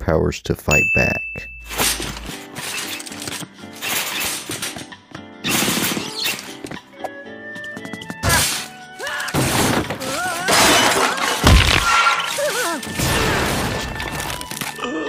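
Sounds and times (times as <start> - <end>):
background music: 1.7 - 15.0
cartoon crashes and shattering: 5.4 - 6.4, 9.3 - 14.5.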